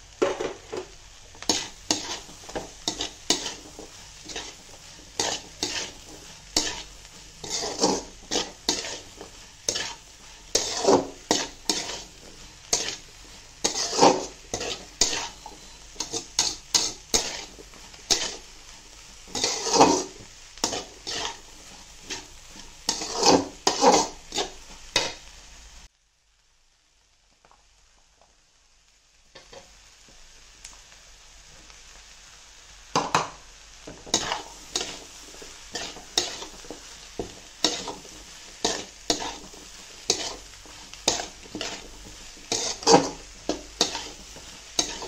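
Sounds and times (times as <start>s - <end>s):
faint frying sizzle: 0.0s - 45.0s
metal spatula scraping a metal pan: 0.7s - 25.2s, 34.0s - 45.0s.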